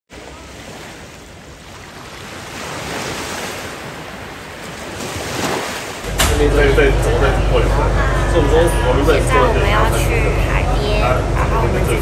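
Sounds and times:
sea waves washing on sand: 0.1s - 6.5s.

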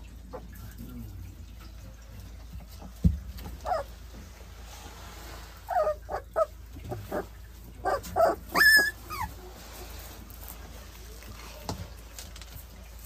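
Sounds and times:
puppies whimpering and yipping: 3.6s - 4.0s, 5.6s - 9.7s.

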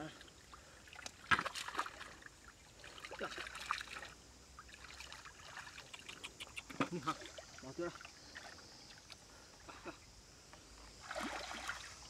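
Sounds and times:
hands splashing in muddy water: 0.9s - 2.2s, 11.0s - 12.0s.

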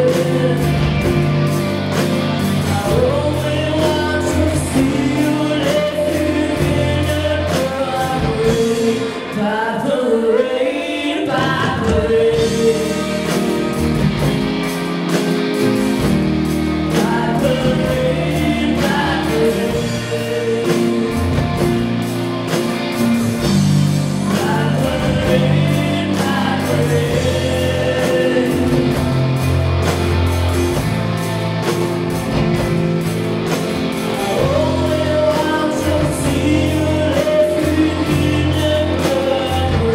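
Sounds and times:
live rock band playing: 0.0s - 39.9s
women singing: 2.7s - 13.8s, 16.9s - 21.8s, 24.2s - 29.2s.

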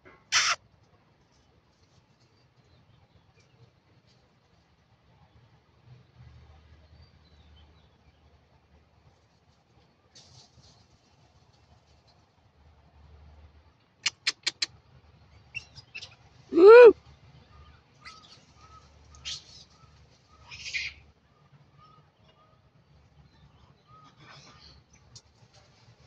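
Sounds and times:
animal call rising and falling: 0.3s - 0.6s, 16.5s - 17.0s
faint short peeps: 0.3s - 0.6s
quick sharp clicks: 14.0s - 14.7s.

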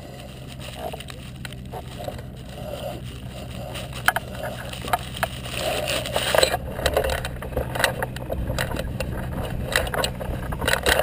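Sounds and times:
low steady rumble: 0.0s - 11.0s
frame clicks and rattles: 3.8s - 11.0s.

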